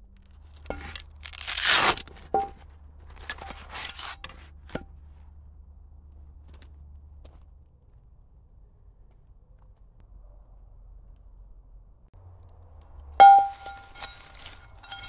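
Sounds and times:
canvas cloth rustling: 0.8 - 2.1
metal clinks: 13.2 - 15.0.

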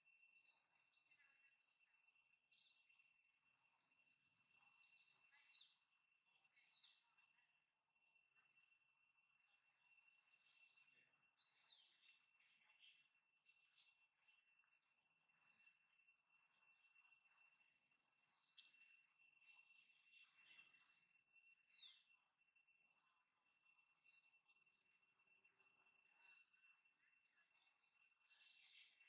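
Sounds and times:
steady high-pitched whine: 0.0 - 29.0
small bird chirping: 4.5 - 7.5, 9.4 - 29.0.

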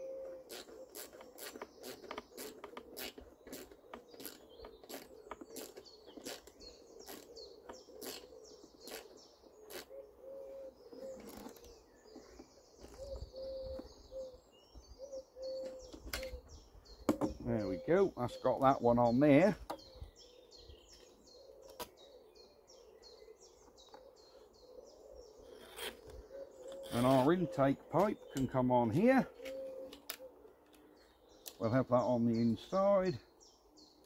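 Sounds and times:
pigeon cooing: 0.0 - 12.2, 12.8 - 16.5, 19.8 - 31.0
birds singing: 0.0 - 34.0.

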